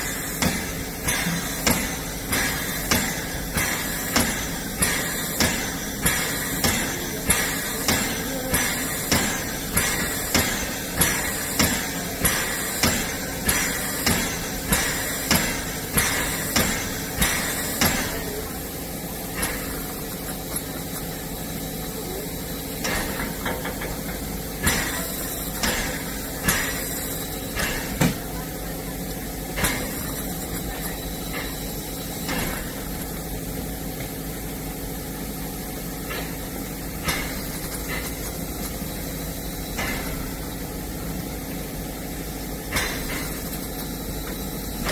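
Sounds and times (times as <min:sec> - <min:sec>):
steady steam hiss and hum: 0:00.0 - 0:44.9
steam locomotive rhythmic knocking: 0:00.0 - 0:44.9.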